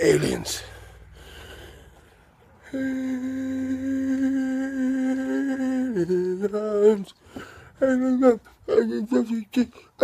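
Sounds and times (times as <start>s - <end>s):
man humming: 2.6s - 7.2s, 7.8s - 9.7s.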